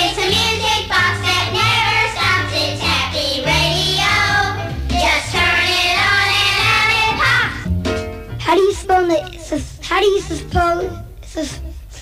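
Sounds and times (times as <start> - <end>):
voices singing a jingle: 0.0 - 7.6
music with moving bass line: 0.0 - 11.2.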